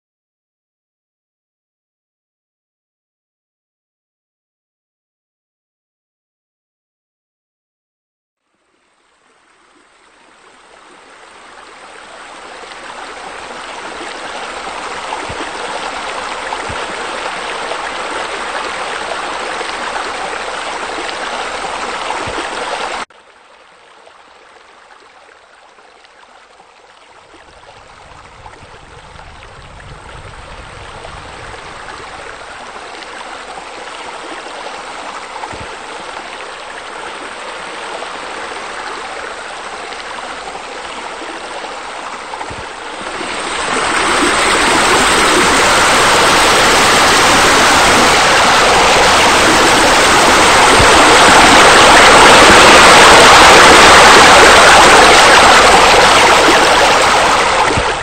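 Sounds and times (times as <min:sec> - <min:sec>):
deeper water sound: 0:08.4 - 0:58.0
water rushing into pool: 0:10.3 - 0:23.1, 0:27.2 - 0:58.0.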